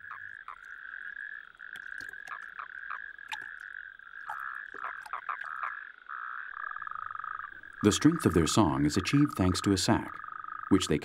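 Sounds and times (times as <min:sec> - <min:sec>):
toads trilling chorus: 0:00.0 - 0:11.0.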